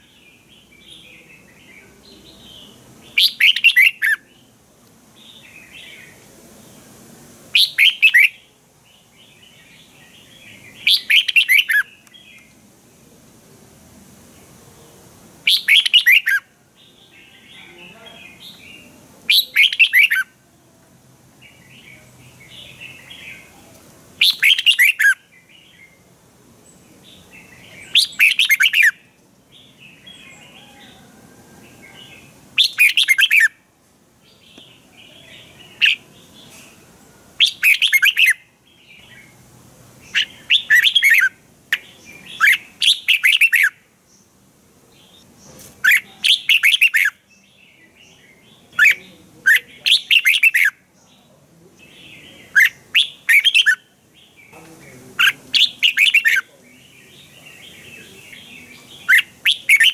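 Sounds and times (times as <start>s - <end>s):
soft bird chattering: 2.1s - 4.2s, 7.6s - 8.4s, 10.5s - 12.5s, 15.5s - 16.4s, 17.1s - 20.3s, 24.2s - 25.2s, 27.4s - 29.0s, 32.1s - 33.6s, 34.6s - 36.8s, 37.4s - 38.4s, 40.1s - 43.8s, 45.0s - 47.2s, 48.6s - 53.9s, 54.5s - 59.9s
bird whistling song: 2.6s - 4.2s, 7.6s - 8.4s, 10.2s - 12.5s, 15.5s - 16.5s, 18.4s - 20.3s, 24.2s - 26.0s, 27.4s - 29.0s, 32.6s - 33.6s, 37.4s - 38.4s, 40.1s - 43.8s, 45.8s - 47.2s, 48.7s - 50.8s, 52.2s - 53.8s, 55.2s - 56.5s, 57.3s - 59.9s.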